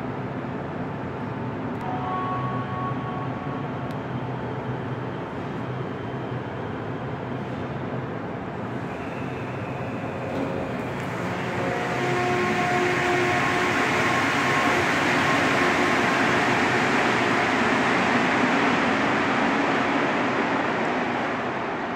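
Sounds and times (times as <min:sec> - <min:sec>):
train running rumble: 0:00.0 - 0:21.9
electric train motor whine: 0:10.6 - 0:18.5.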